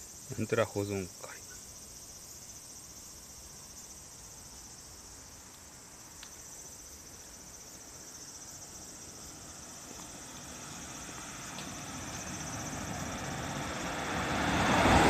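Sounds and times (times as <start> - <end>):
insects trilling: 0.0 - 15.0
car approaching: 8.5 - 15.0.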